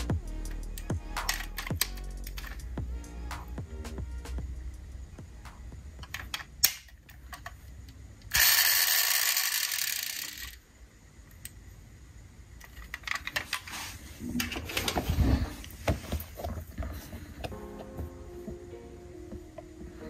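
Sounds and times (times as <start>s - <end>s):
toy cars clicking and knocking: 0.8s - 2.6s, 6.0s - 10.6s, 12.6s - 13.7s.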